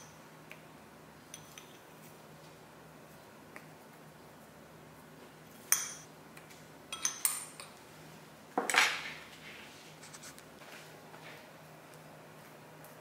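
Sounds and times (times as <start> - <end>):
spoon clinking against glass bowl: 1.3 - 1.8, 5.7 - 6.1, 6.9 - 7.7.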